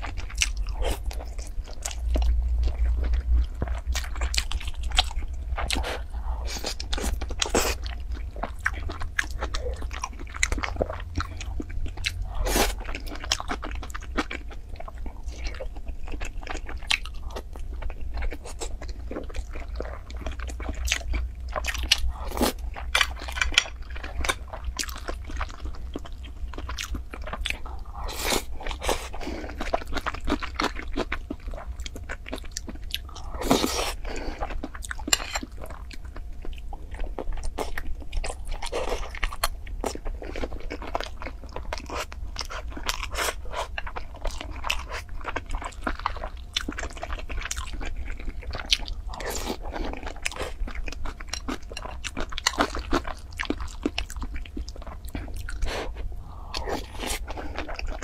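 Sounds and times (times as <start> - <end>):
person chewing and crunching: 0.0 - 58.0
low hum: 54.2 - 58.0.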